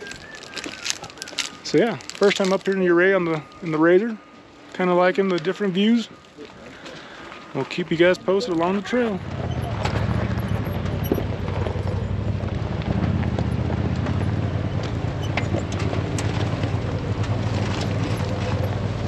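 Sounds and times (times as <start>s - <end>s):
vehicle engine running: 7.0s - 19.0s.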